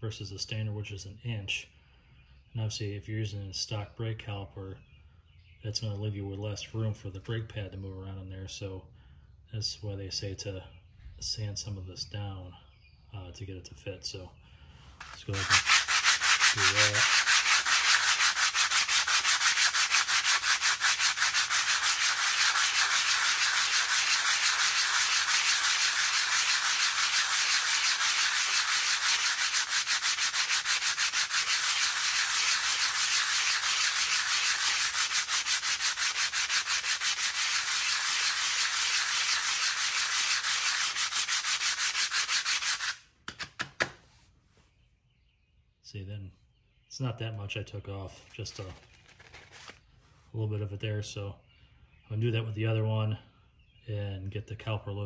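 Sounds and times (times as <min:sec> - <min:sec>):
brake pad scratching on sandpaper: 0:15.0 - 0:43.0.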